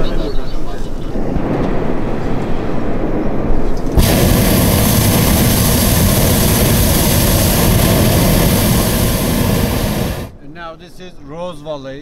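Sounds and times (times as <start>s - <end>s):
low rumble: 4.0s - 10.4s
propane burner hissing: 4.0s - 10.4s.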